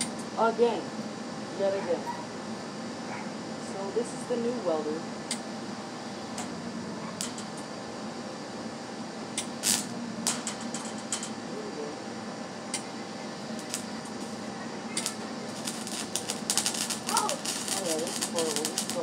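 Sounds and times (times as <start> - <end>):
steady hum: 0.0 - 19.0
welding arc crackling: 6.2 - 7.8, 9.2 - 11.8, 12.5 - 19.0.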